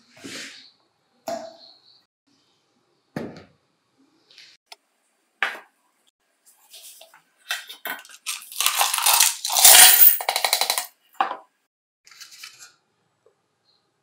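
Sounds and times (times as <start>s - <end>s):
metal parts clinking: 8.0s - 10.9s.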